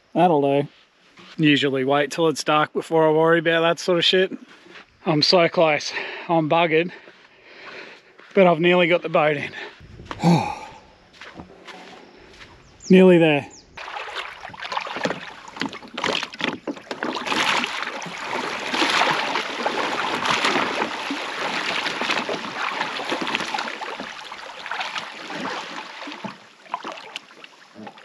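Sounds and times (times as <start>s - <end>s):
water splashing and sloshing: 9.2s - 12.6s, 13.8s - 28.0s
boat knocks: 14.1s - 24.2s.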